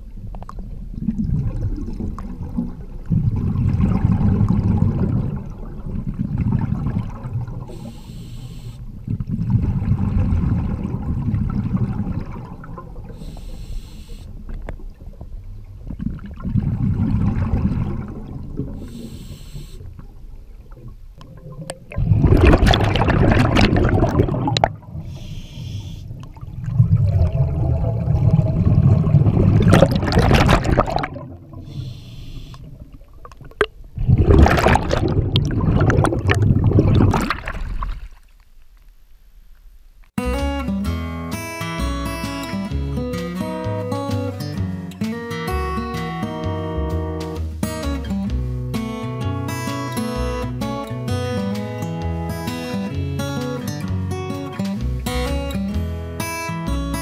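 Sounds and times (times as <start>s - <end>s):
exhaust bubbles rumbling: 0.0s - 7.8s, 8.9s - 13.3s, 14.4s - 25.2s, 26.1s - 38.1s
regulator inhale hiss: 7.7s - 8.9s, 13.1s - 14.4s, 18.8s - 20.0s, 25.0s - 26.1s, 31.6s - 32.7s.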